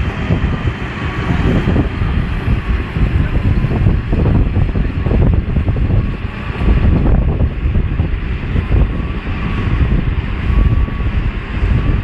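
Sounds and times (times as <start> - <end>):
heavy machinery rumbling: 0.0 - 12.0
wind buffeting microphone: 0.0 - 12.0
faint high whine: 2.6 - 12.0.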